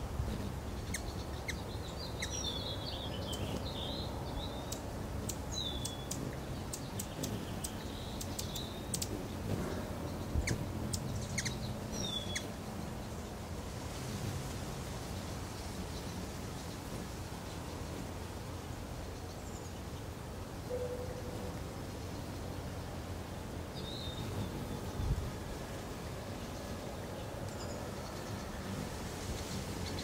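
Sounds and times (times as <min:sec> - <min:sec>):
hummingbird squeaky twitters: 0:00.3 - 0:01.6, 0:04.5 - 0:09.5, 0:10.2 - 0:12.9
hummingbird chip notes: 0:04.6 - 0:12.9.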